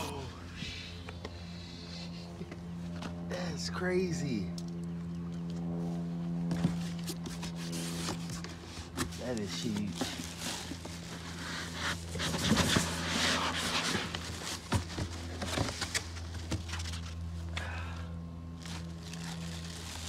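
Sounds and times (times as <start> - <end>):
steady low hum: 0.0 - 20.0
foam and cardboard rustling: 6.5 - 17.2
plastic wrap crinkling: 18.6 - 20.0.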